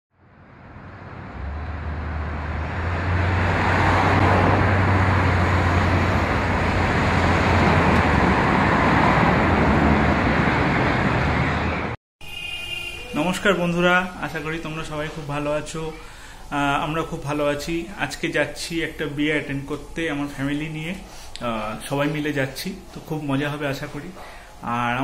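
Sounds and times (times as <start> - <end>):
cars passing: 0.2 - 13.2.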